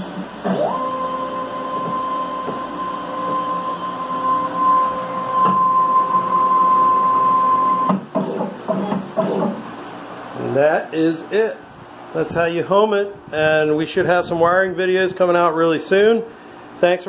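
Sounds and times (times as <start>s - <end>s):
stepper motors whining: 0.0s - 9.9s.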